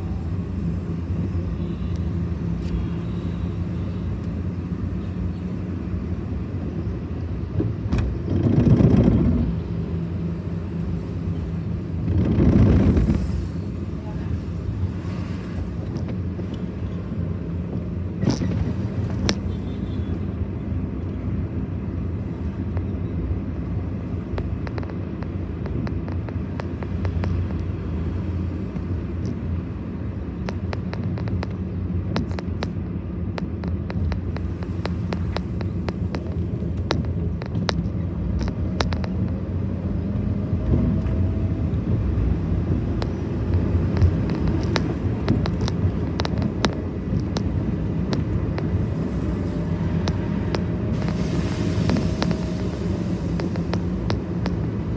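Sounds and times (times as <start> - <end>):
car driving low rumble: 0.0 - 54.9
light clicks and rattles: 42.9 - 49.3.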